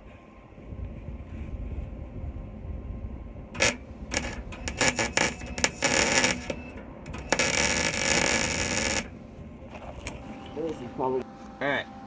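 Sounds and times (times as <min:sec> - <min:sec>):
welder arc crackling: 0:03.6 - 0:09.3.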